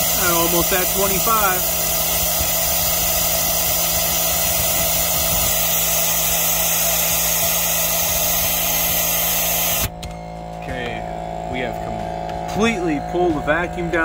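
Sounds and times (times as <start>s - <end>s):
compressed air hissing: 0.0s - 10.0s.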